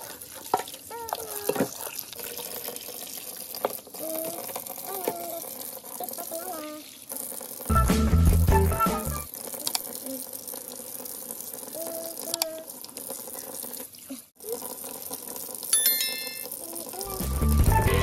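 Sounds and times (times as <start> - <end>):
water running in a metal sink: 0.0 - 17.8
short electronic bell chime: 15.8 - 16.5.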